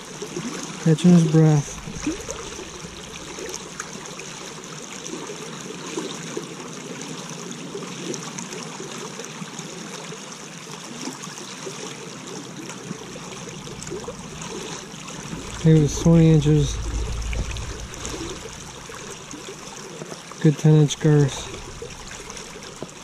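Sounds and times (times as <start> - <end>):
creek babbling over stones: 0.0 - 23.0.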